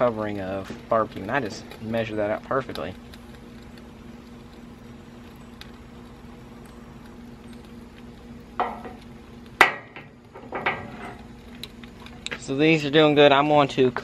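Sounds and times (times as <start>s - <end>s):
low hum: 0.0s - 13.9s
meat sizzling on a grill: 0.0s - 14.0s.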